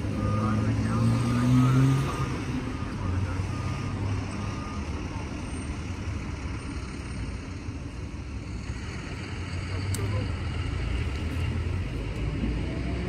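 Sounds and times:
street noise: 0.0 - 13.0
faint high beeps: 0.1 - 5.7.

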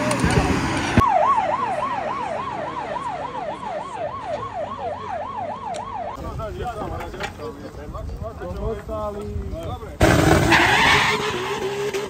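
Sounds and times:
fire truck siren yelping: 1.0 - 6.2.

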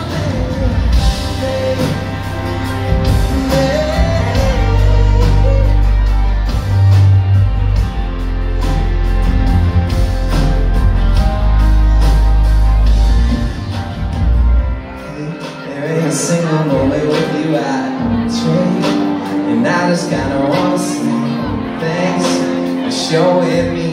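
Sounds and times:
man singing: 0.0 - 7.6, 14.8 - 23.9
live band playing: 0.0 - 23.9.

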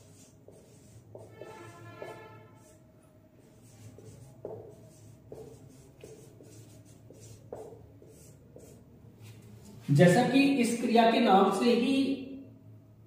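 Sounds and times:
marker writing on whiteboard: 0.0 - 9.5.

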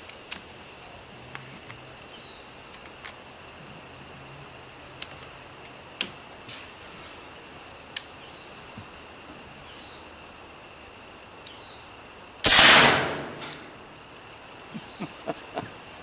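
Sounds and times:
air rifle shot: 12.4 - 13.7.

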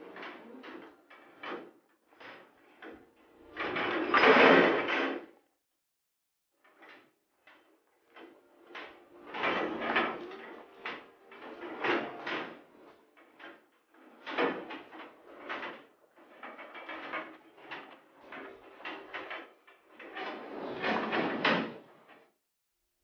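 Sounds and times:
metal feed barrier clanking: 8.6 - 13.5.

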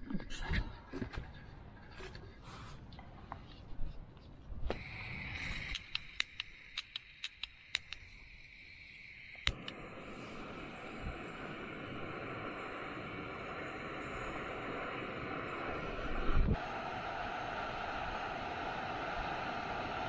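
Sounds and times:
piezo igniter clicks: 4.7 - 8.2, 9.3 - 9.9
gas hissing: 4.7 - 20.0
stove burner running: 9.0 - 20.0.

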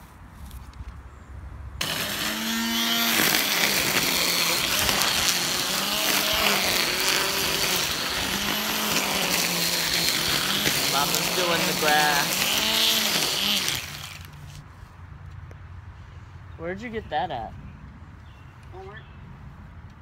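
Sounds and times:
electric grass trimmer running: 1.8 - 14.4.

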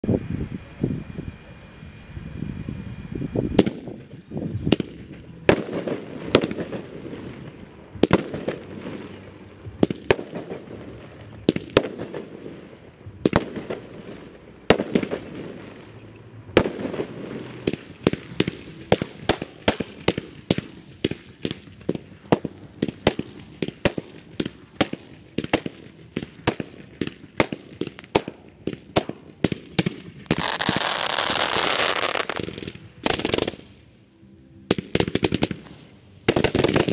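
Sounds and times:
firework bangs echoing: 3.6 - 16.0, 16.6 - 33.8, 34.7 - 36.9
hiss of fountain fireworks: 16.6 - 33.9, 34.7 - 36.9.

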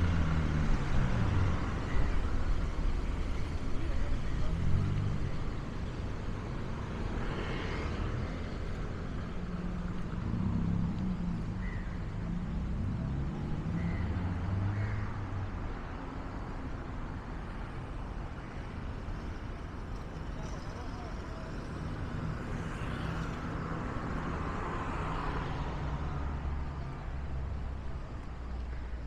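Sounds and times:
cars and motorbikes passing: 0.0 - 29.0.

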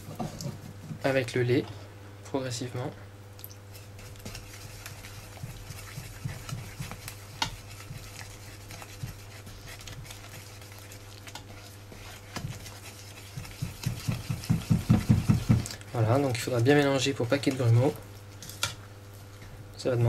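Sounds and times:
steady low hum: 0.0 - 20.0
spatula scraping mixing bowl: 3.7 - 18.0.

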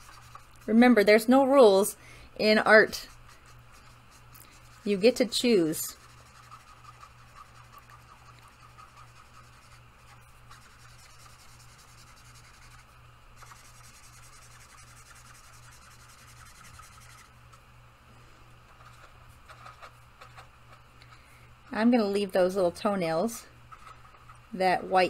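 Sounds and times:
marker rubbing on paper: 0.0 - 1.4, 2.4 - 17.3, 18.7 - 20.5.

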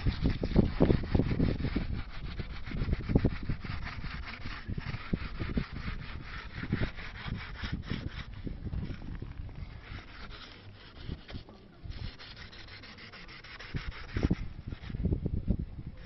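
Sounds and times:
pad scrubbing metal bar: 0.0 - 15.0.

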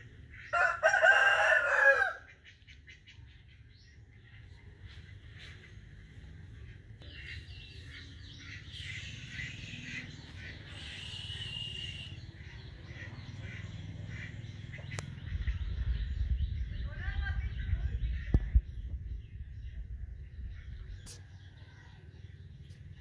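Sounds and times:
small birds chirping: 2.2 - 23.0
bird trill: 7.0 - 17.8
low rumble: 13.2 - 21.2.

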